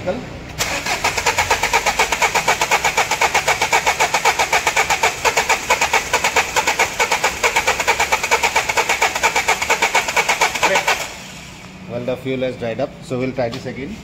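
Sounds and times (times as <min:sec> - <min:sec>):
starter motor cranking engine: 0:00.6 - 0:11.8.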